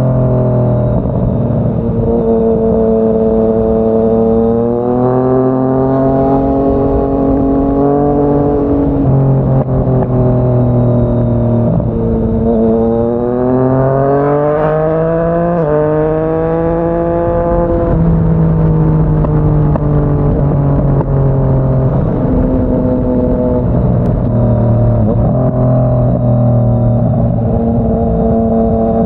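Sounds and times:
motorcycle engine accelerating: 0.0s - 29.0s.

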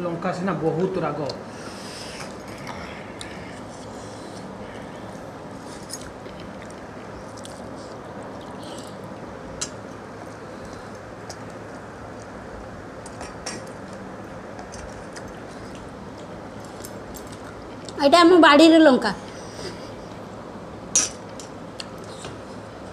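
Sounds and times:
steady background hiss: 0.0s - 22.9s
chewing: 5.8s - 12.4s.

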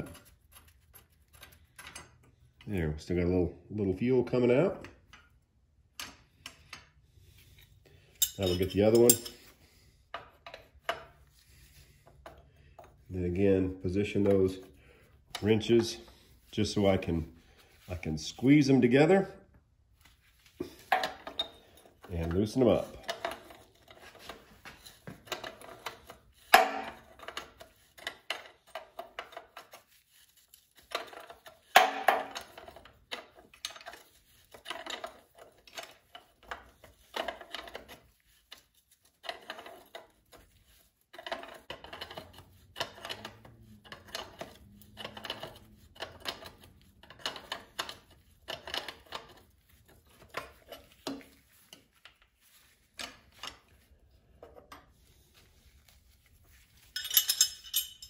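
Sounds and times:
steel wrenches clinking: 8.1s - 9.6s, 56.8s - 58.0s.

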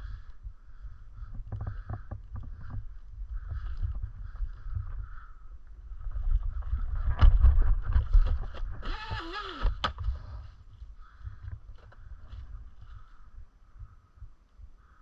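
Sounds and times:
wind on microphone: 0.0s - 10.5s
board wheel rumbling on dirt: 0.8s - 13.2s
motor whine: 8.8s - 9.8s.

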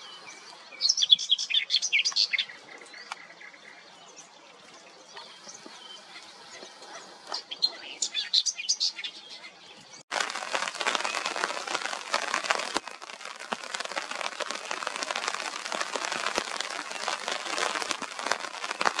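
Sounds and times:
rain pattering: 10.1s - 19.0s.

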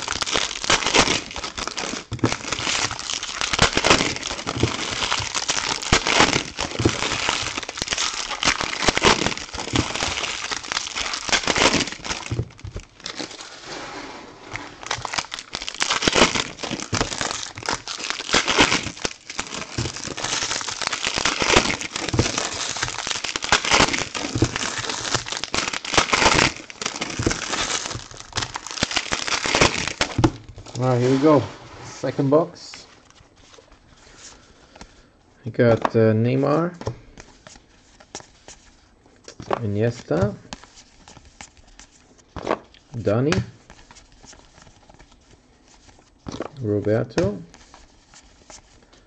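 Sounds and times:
foil wrappers crinkling and tearing: 0.0s - 13.6s, 14.5s - 31.4s.

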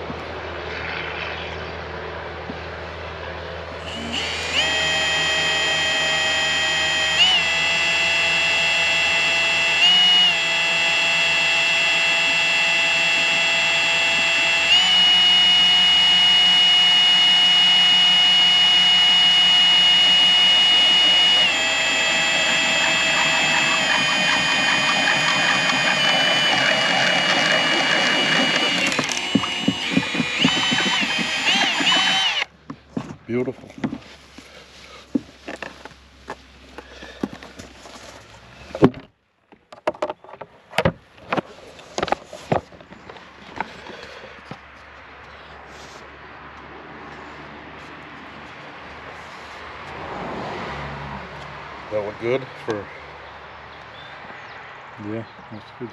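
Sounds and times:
cordless drill whining: 3.8s - 32.5s.

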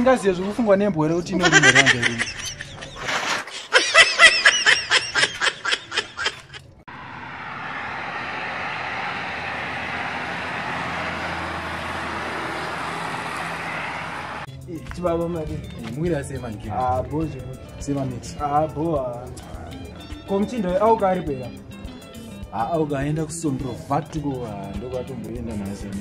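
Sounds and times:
man laughing: 1.4s - 6.6s
road traffic rushing: 5.1s - 14.5s.

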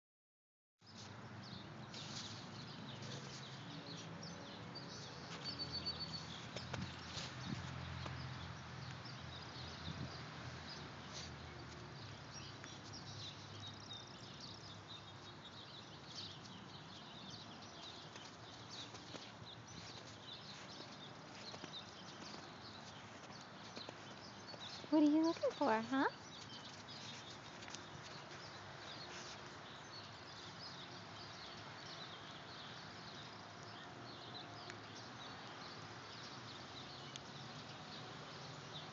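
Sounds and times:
faint outdoor background noise: 0.8s - 38.9s
small birds chirping: 0.8s - 38.9s
soft ticks: 37.1s - 37.3s.

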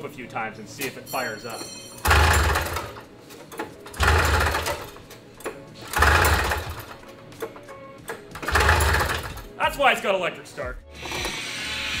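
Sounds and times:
engine whirring without starting: 2.1s - 3.0s, 3.9s - 4.9s, 5.8s - 7.0s, 8.4s - 9.5s.

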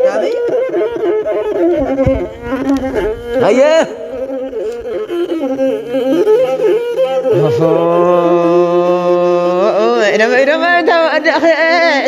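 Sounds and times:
instrumental backing: 0.0s - 12.0s
person singing: 6.1s - 10.4s.

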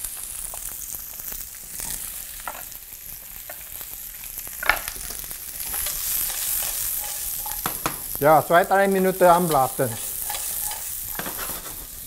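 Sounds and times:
vegetables sizzling in a pan: 0.0s - 12.0s
spatula scraping a pan: 4.9s - 8.2s, 9.2s - 12.0s.

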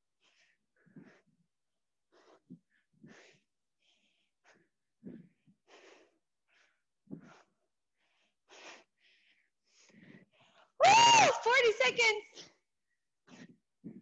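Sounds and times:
person breathing hard: 2.1s - 10.8s.

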